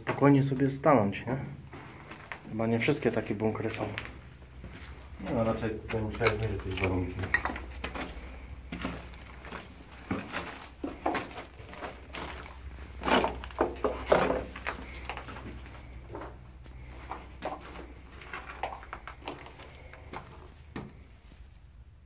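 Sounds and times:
footsteps crunching over rubble: 0.0 - 21.5
knocks and scrapes: 5.9 - 21.1.

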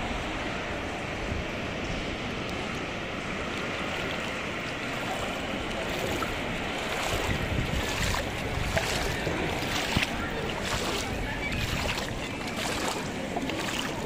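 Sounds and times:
wind on microphone: 0.0 - 14.0
floodwater sloshing: 3.5 - 14.0
faint splashes or knocks: 5.9 - 14.0.

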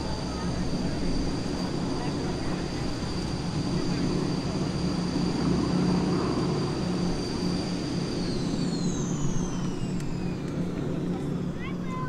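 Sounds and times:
jet engines whining and spooling down: 0.0 - 12.0.

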